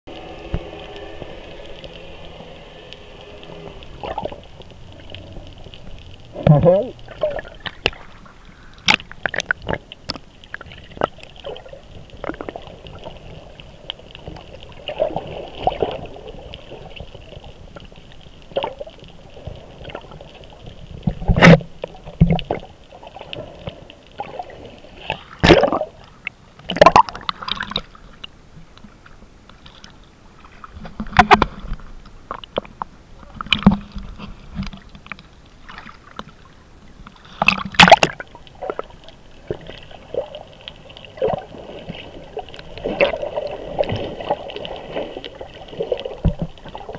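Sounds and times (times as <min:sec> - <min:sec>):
water sloshing and gurgling: 0:00.1 - 0:46.9
splashes and knocks: 0:21.0 - 0:22.7, 0:25.0 - 0:26.0, 0:26.6 - 0:28.0, 0:30.6 - 0:36.4, 0:37.2 - 0:40.4, 0:41.2 - 0:46.9.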